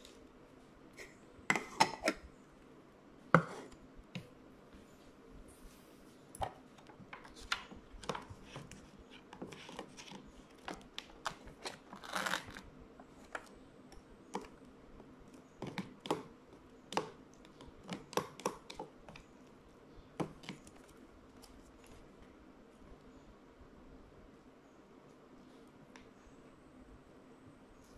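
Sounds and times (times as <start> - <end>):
paper peeling and crinkling: 11.3 - 12.6.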